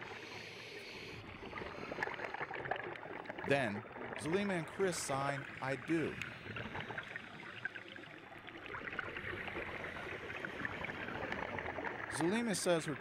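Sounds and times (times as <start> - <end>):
underwater hiss with crackles: 0.0 - 3.4, 4.8 - 12.8.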